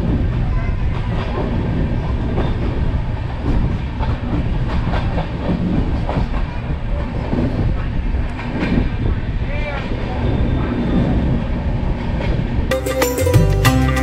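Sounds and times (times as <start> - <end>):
wheels clacking over rail joints: 0.0 - 10.2
train rumble: 0.0 - 12.7.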